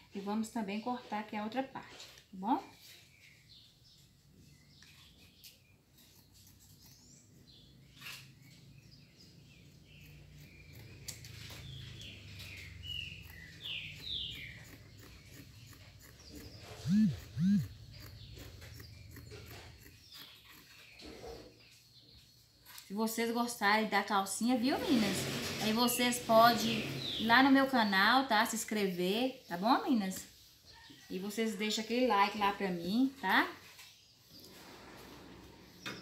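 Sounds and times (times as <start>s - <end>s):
birds chirping: 2.3s - 36.0s
steady low hum: 14.6s - 20.2s.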